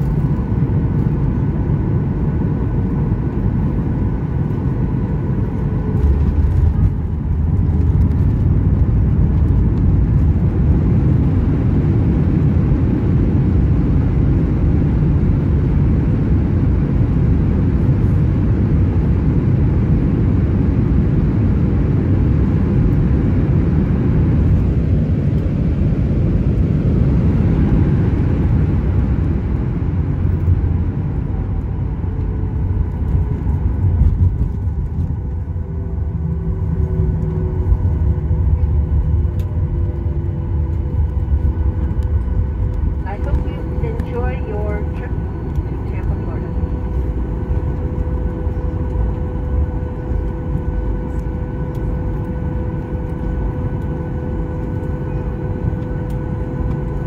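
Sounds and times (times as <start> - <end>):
wheels rolling on taxiway: 0.0 - 18.9, 20.0 - 57.0
jet engines idling: 21.9 - 57.0.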